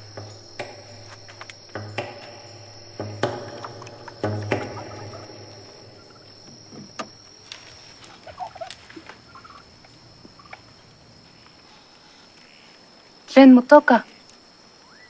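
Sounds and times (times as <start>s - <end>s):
crickets chirring: 0.0s - 15.0s
fowl clucking: 3.5s - 6.6s, 7.9s - 10.8s.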